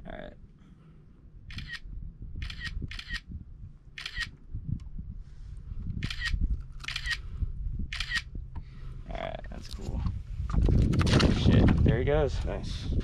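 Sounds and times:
low rumble: 0:00.0 - 0:13.0
camera shutter snaps: 0:01.5 - 0:01.8, 0:02.4 - 0:03.3, 0:04.0 - 0:04.3, 0:06.0 - 0:07.2, 0:07.9 - 0:08.3.

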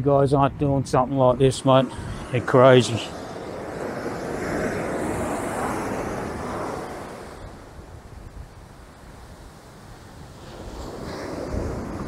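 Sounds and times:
wind on microphone: 0:00.0 - 0:12.0
ocean surf on sandy beach: 0:00.1 - 0:12.0.

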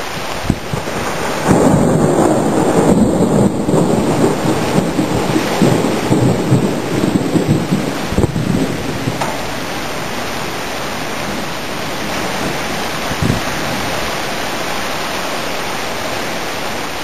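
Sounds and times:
thunder rumbling: 0:00.0 - 0:15.1
rain pouring: 0:00.0 - 0:17.0.

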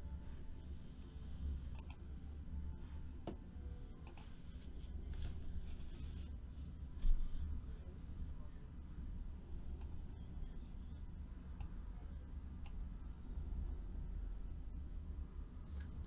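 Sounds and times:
steady low hum: 0:00.0 - 0:16.0
faint clicks: 0:01.8 - 0:02.0.

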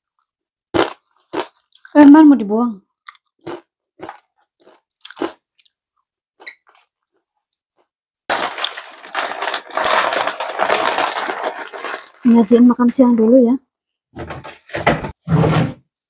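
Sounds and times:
crisp crunches: 0:08.3 - 0:12.4
plastic bag crinkling: 0:08.3 - 0:12.6.

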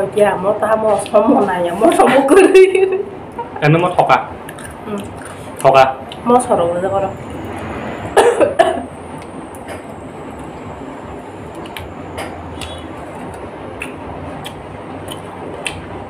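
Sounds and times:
small clicks and smacks: 0:11.5 - 0:15.9.

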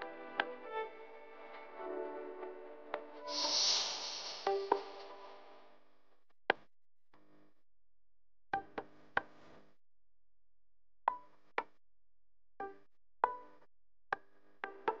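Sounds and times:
single struck notes: 0:03.3 - 0:05.2.

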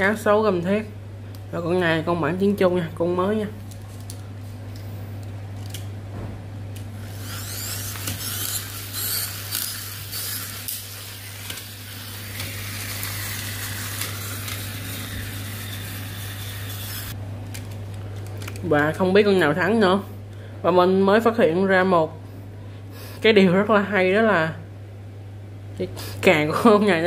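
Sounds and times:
toy car motors whirring: 0:07.0 - 0:17.2
toy cars clicking and knocking: 0:07.2 - 0:10.8.

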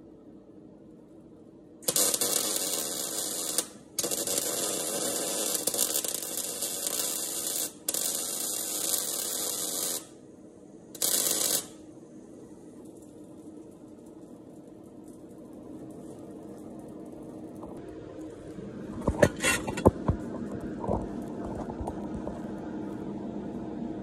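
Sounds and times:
welder arc crackling: 0:01.8 - 0:10.2, 0:10.9 - 0:11.8.

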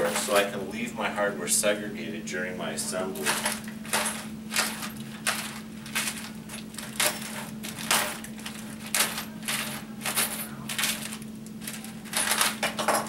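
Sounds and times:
plastic packaging crinkling: 0:03.2 - 0:12.6
small metal parts clicking: 0:03.2 - 0:13.0.

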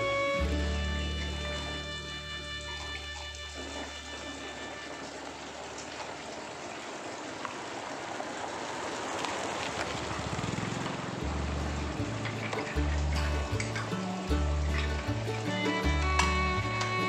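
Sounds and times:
background music with low notes: 0:00.0 - 0:04.8, 0:11.2 - 0:17.0
water splashing from washing dishes: 0:00.9 - 0:17.0
tap water pouring into basin: 0:01.2 - 0:17.0.

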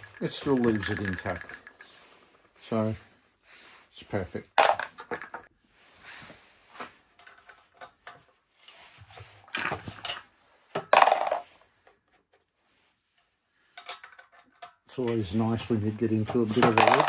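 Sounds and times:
brass cartridge cases clinking: 0:00.0 - 0:01.9, 0:16.4 - 0:17.0.

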